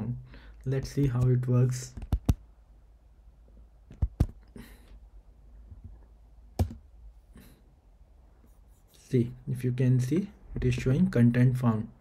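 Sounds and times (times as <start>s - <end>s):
keyboard and mouse clicks: 0.8s - 2.4s, 3.9s - 4.5s, 6.6s - 6.8s.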